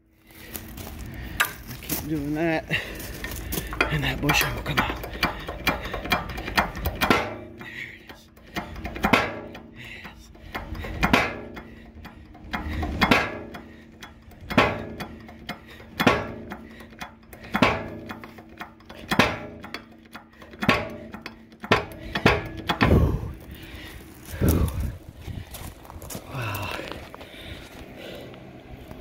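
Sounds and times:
hydraulic jack clicking: 3.4 - 24.9
heavy low thump: 21.7 - 26.9.

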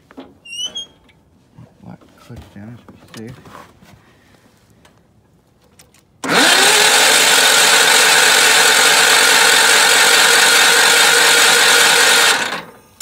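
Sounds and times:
engine cranking on starter: 6.2 - 12.8.

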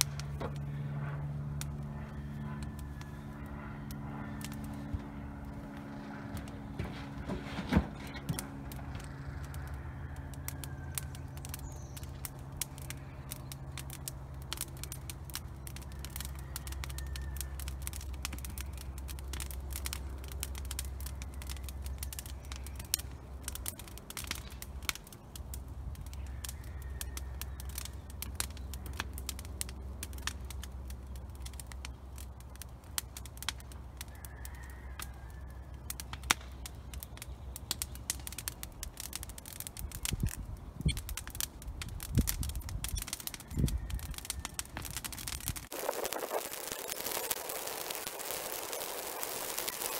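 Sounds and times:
low steady hum: 0.0 - 34.0
fire crackling and popping: 0.0 - 49.9.

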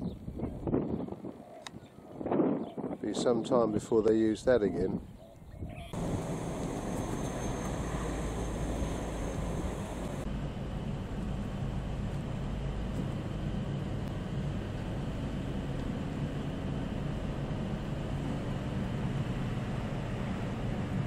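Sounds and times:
car engine and tyre rumble: 6.0 - 21.0.

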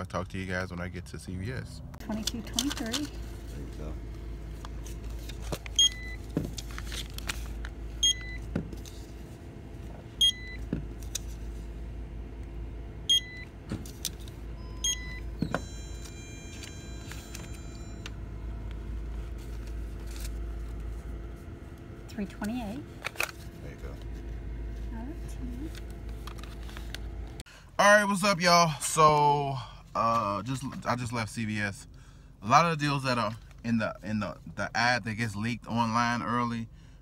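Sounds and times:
steady low hum: 0.0 - 37.0
barcode scanner beeping: 5.8 - 6.2, 8.0 - 8.5, 10.2 - 10.6, 13.1 - 13.5, 14.6 - 18.1.

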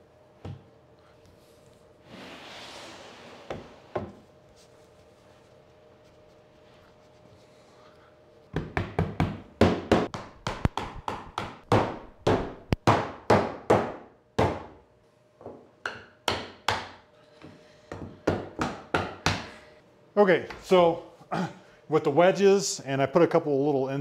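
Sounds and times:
mallet striking wooden wedges: 8.6 - 14.8, 15.8 - 17.0.

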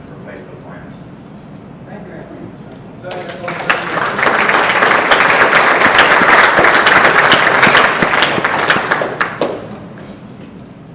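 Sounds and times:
audience applauding: 3.1 - 9.8.

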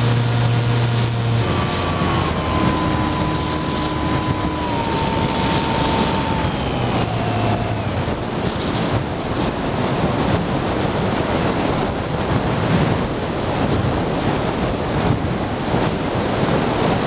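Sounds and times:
model plane motor tone: 0.0 - 9.3
wind rushing over microphone: 0.0 - 17.0.

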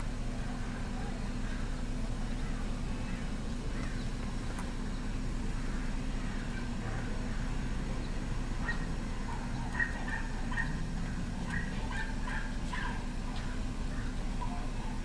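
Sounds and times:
low background rumble: 0.0 - 15.0
small dogs barking: 8.6 - 15.0.

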